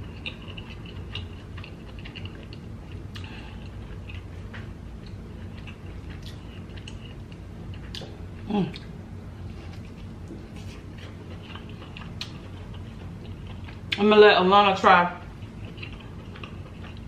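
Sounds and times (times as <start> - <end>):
eating clicks and wet squishes: 0.0 - 8.9, 15.4 - 17.0.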